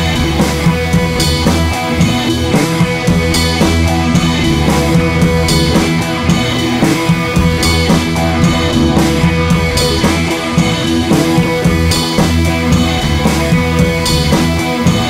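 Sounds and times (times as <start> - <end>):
rock music with drums and guitar: 0.0 - 15.0.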